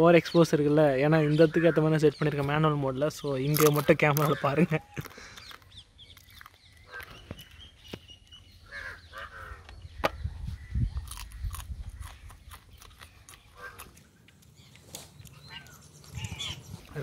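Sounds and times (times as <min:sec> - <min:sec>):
man chewing and smacking: 0:03.4 - 0:08.5, 0:10.8 - 0:17.0.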